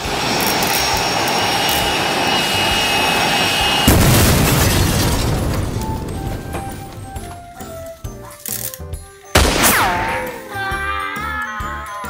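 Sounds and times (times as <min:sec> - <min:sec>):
jet engine rushing noise: 0:00.0 - 0:04.0
sudden boom: 0:09.4 - 0:10.6.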